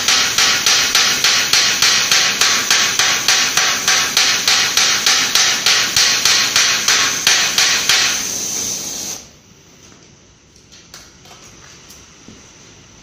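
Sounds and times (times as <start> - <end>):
hammer striking hot rivet: 0.0 - 8.3
gas torch flame hiss: 0.0 - 9.5.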